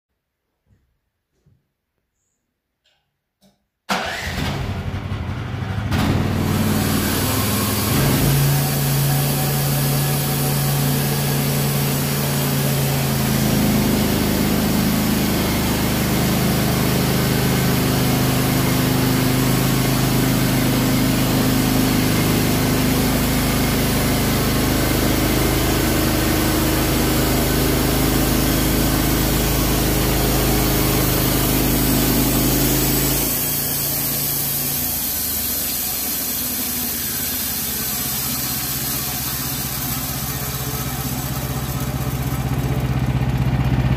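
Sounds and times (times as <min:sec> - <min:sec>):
bandsaw mill engine drone: 0:04.0 - 0:43.9
blade cutting log hiss: 0:31.2 - 0:42.5.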